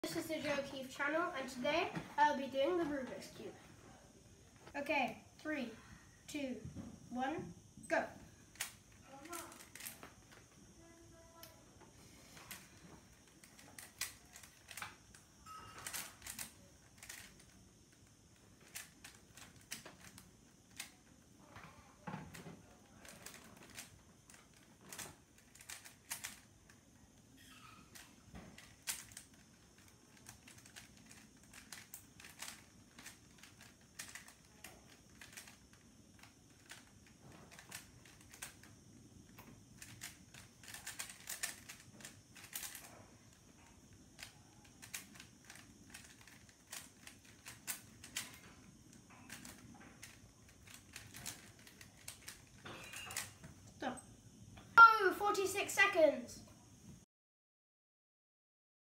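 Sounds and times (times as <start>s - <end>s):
puzzle cube clicking: 8.5s - 10.1s, 13.3s - 15.2s, 15.8s - 17.6s, 18.6s - 21.0s, 23.0s - 26.5s, 27.5s - 38.7s, 39.4s - 43.0s, 44.2s - 48.5s, 49.3s - 53.3s.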